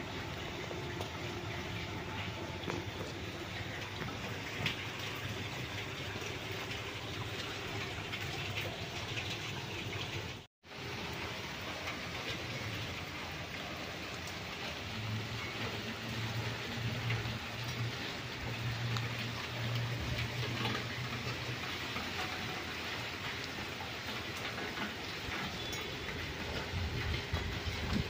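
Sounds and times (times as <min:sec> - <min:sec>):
heavy rain falling: 0:00.0 - 0:28.0
rain drop ticks: 0:00.0 - 0:28.0.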